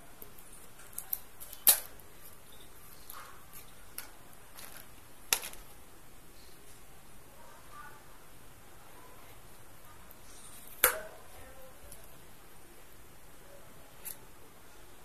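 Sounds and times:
plastic shrink-wrap crinkling: 1.0s - 5.8s.

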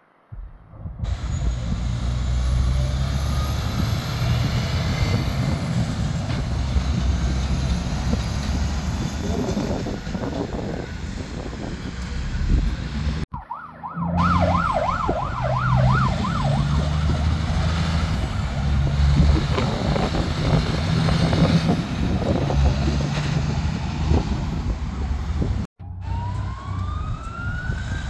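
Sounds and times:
road traffic noise: 0.3s - 28.0s
diesel truck engine running: 0.4s - 13.3s
siren wailing: 13.3s - 17.6s, 25.8s - 28.0s.

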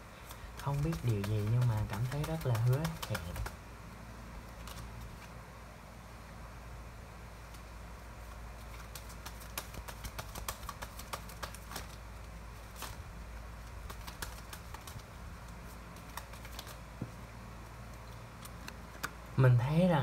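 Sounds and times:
low steady hum: 0.0s - 20.0s
cards clicking together: 0.2s - 3.6s, 4.6s - 5.1s, 8.7s - 12.0s, 13.8s - 15.0s, 16.0s - 16.8s.

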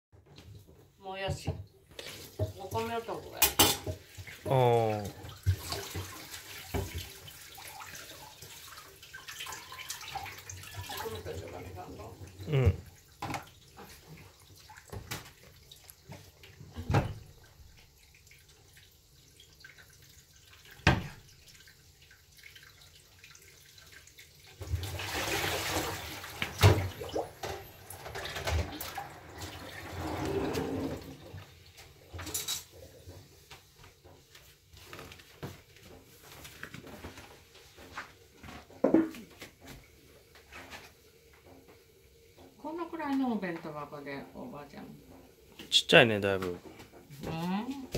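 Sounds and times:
kitchen things clattering: 2.0s - 4.3s, 25.7s - 33.4s
tap running into a sink: 5.1s - 8.8s, 13.2s - 14.3s, 20.7s - 21.4s, 24.6s - 43.8s.

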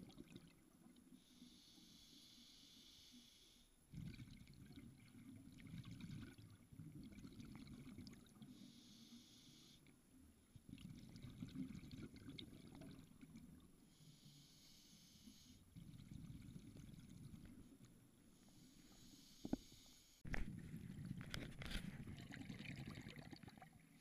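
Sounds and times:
regulator inhalation hiss: 1.2s - 3.7s, 8.5s - 9.8s, 13.9s - 15.6s, 18.5s - 20.2s
gurgling exhaled bubbles: 3.9s - 8.4s, 10.6s - 13.6s, 15.7s - 17.6s, 20.6s - 24.0s.

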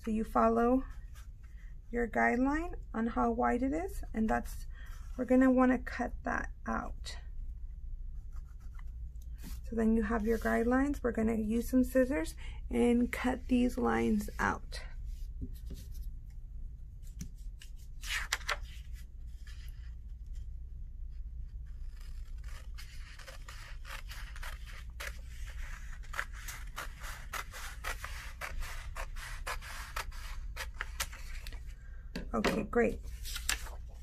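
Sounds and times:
scissors cutting paper: 21.8s - 31.5s.

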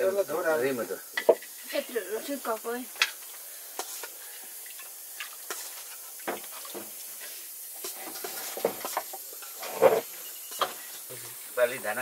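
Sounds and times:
soup sizzling in a wok: 0.0s - 12.0s
metal ladle scraping a wok: 7.2s - 11.1s.

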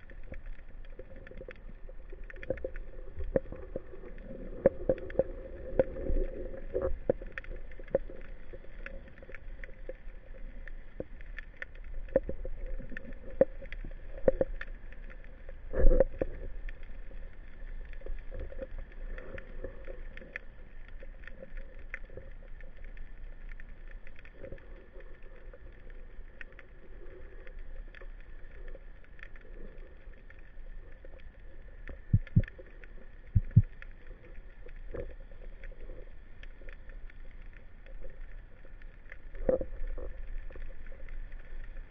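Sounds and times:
muffled underwater hiss: 0.0s - 41.9s
sharp clicks and crackles: 0.0s - 41.9s.

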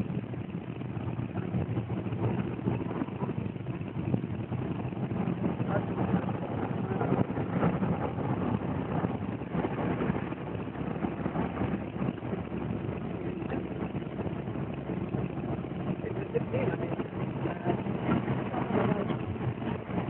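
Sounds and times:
car engine from inside cabin: 0.0s - 20.0s
road noise: 0.0s - 20.0s.

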